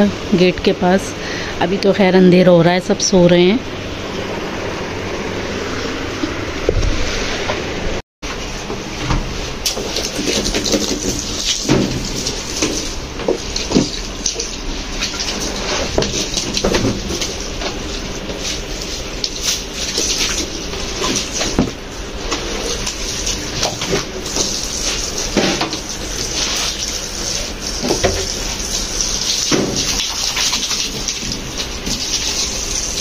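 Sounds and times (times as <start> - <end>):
hose water splashing on rug: 9.6 - 33.0.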